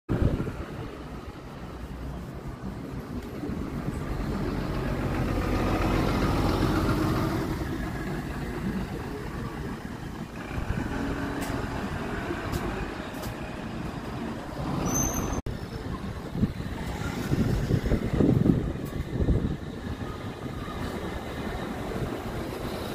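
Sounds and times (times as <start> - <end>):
bus diesel engine rumble: 0.1 - 22.9
high squeaks and squeal: 14.7 - 15.9.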